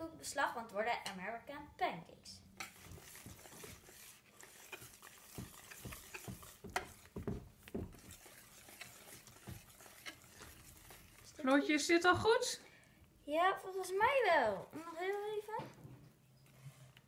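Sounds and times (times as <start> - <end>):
whisk scraping batter in bowl: 2.6 - 12.6.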